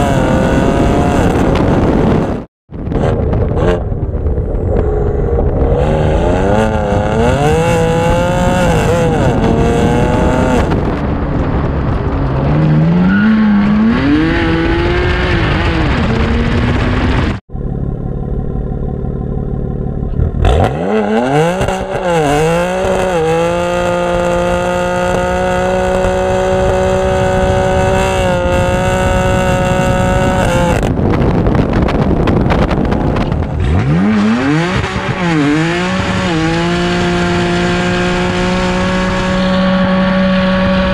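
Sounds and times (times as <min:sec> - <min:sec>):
car engine revving: 0:00.0 - 0:40.9.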